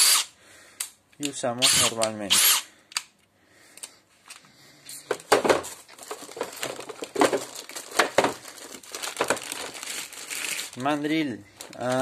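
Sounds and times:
plastic bags crinkling: 5.1 - 12.0.

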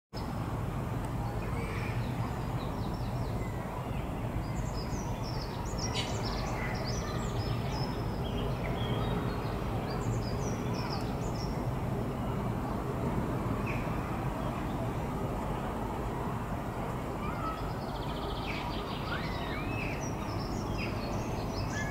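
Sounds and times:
small birds chirping: 1.3 - 12.3, 17.2 - 21.9.

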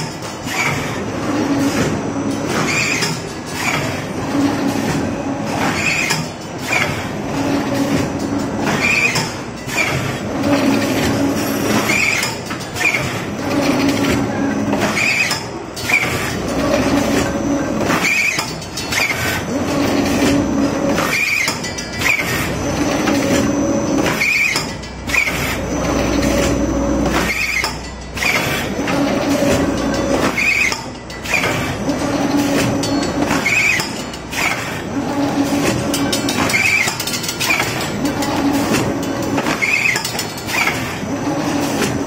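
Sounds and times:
machine high squeal: 2.7 - 3.8, 8.8 - 10.0, 11.2 - 13.1, 21.1 - 28.4, 29.9 - 34.6, 36.0 - 37.8, 39.6 - 40.8
machine running tone: 12.9 - 42.0.

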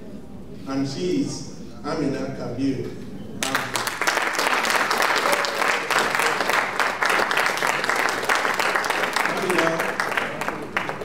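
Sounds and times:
audience applauding: 3.4 - 11.0.

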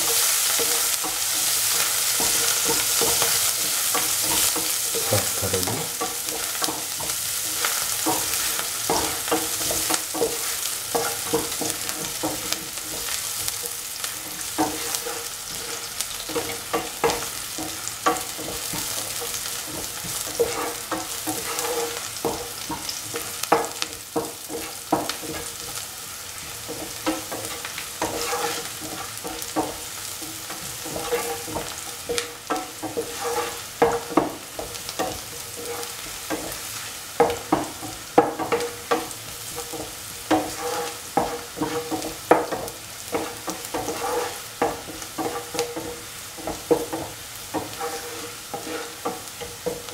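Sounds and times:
onions sizzling in oil: 0.0 - 49.9
utensil scraping pan: 19.6 - 23.7, 26.7 - 36.6, 37.2 - 49.9.

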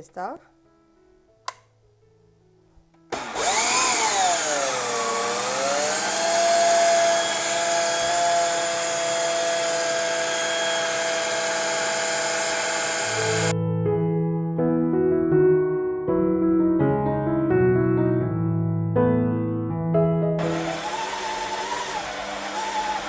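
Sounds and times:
dough kneader motor humming: 3.1 - 13.5, 20.4 - 23.0.

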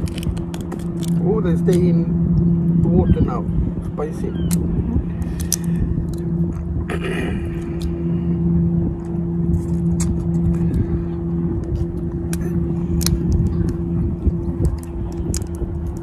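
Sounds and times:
shrimp being peeled: 0.0 - 1.8, 11.7 - 13.8, 14.6 - 16.0
engine humming: 0.0 - 16.0.

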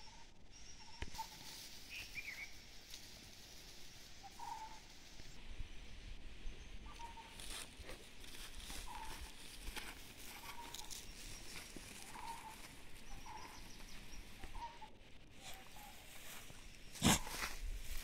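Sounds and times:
footsteps crunching through dry grass: 1.0 - 5.4, 6.8 - 18.0
short high animal calls: 4.2 - 4.9.

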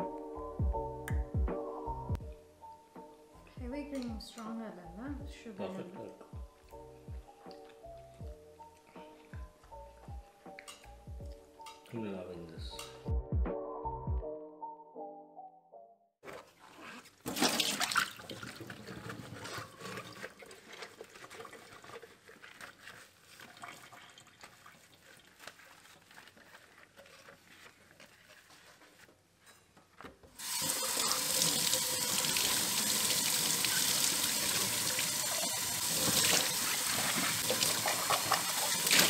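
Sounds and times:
drink splashing into sink: 17.3 - 21.9, 30.4 - 39.0
faucet water running: 17.3 - 26.6, 30.4 - 39.0
sponge scrubbing glass: 18.5 - 29.2.

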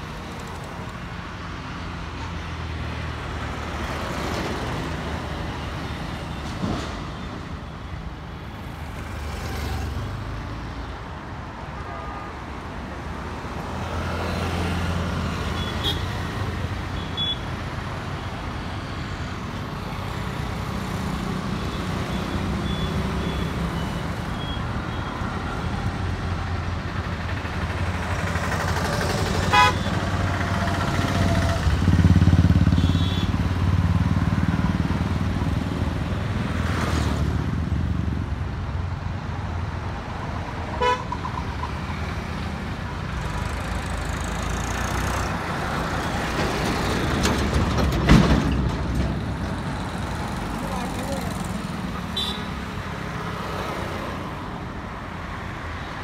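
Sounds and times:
road traffic passing: 0.0 - 56.0
vehicle horn toots: 29.5 - 29.9, 40.8 - 41.1, 52.2 - 52.5.

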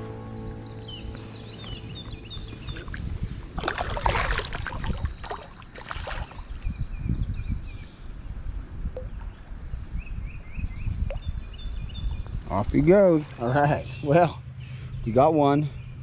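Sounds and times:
fish splashing in water: 2.6 - 6.6.

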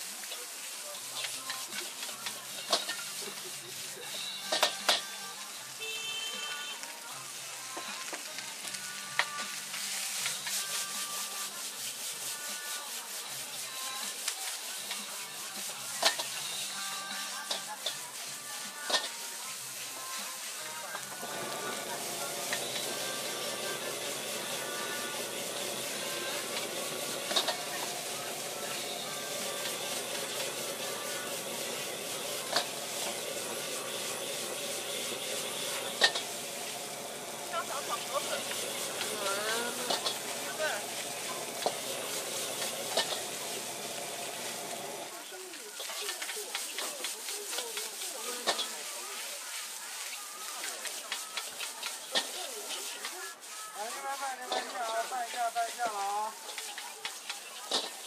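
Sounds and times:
rice sizzling in a wok: 0.0 - 58.0
metal ladle scraping a wok: 1.1 - 5.2, 9.3 - 45.1, 45.8 - 58.0
ladle clanging on wok: 25.2 - 28.1, 32.4 - 36.4, 38.4 - 40.4, 41.4 - 43.4.

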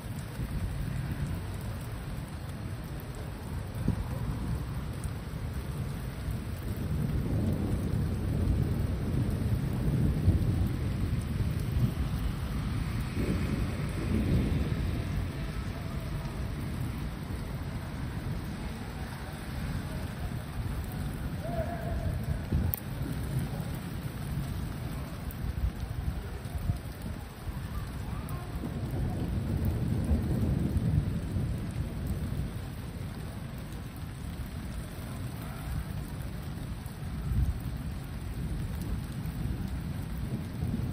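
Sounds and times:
steady rain falling: 0.0 - 40.9
thunder rumbling: 0.0 - 40.9.

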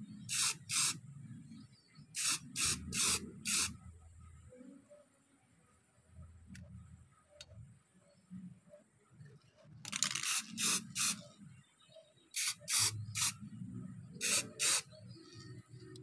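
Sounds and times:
spray paint can hissing: 0.3 - 1.0, 2.2 - 3.8, 9.9 - 11.2, 12.4 - 13.4, 14.2 - 14.9.

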